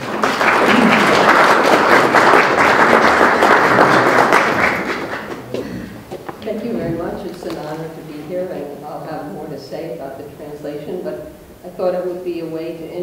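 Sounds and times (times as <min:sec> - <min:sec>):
audience applauding: 0:00.0 - 0:06.2.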